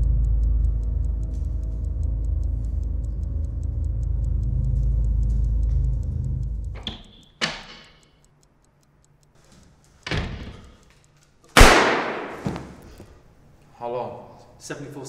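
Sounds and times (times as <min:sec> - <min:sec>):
low drone: 0:00.0 - 0:06.8
fast-ticking clock: 0:00.0 - 0:11.2
pistol shot with echo: 0:11.6 - 0:12.8
sharp bangs: 0:11.6 - 0:13.0.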